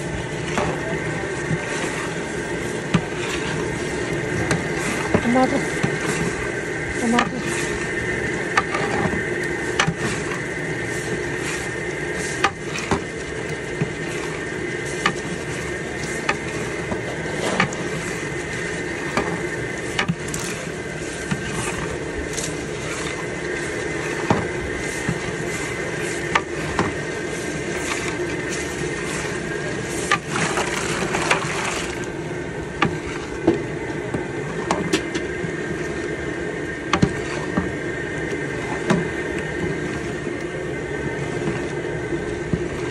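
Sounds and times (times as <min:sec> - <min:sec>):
ladle scraping metal pot: 0:00.0 - 0:32.0
steady hiss and hum: 0:00.0 - 0:42.9.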